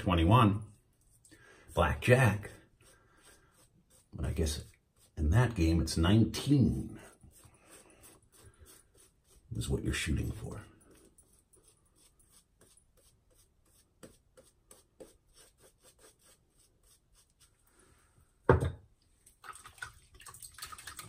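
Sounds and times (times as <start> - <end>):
shaving brush rubbing on face: 1.0 - 5.6, 6.4 - 17.6.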